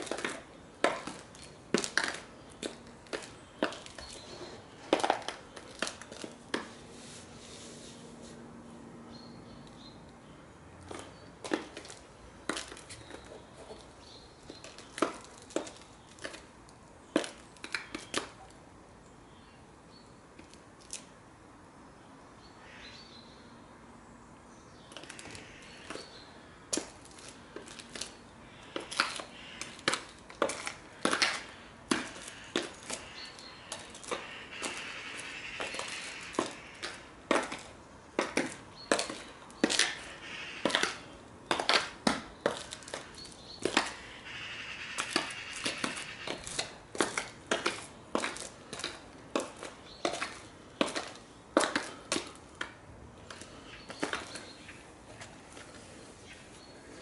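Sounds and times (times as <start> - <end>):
high heels clicking on stone: 0.0 - 6.7, 10.8 - 16.5, 26.7 - 44.1, 45.0 - 55.7.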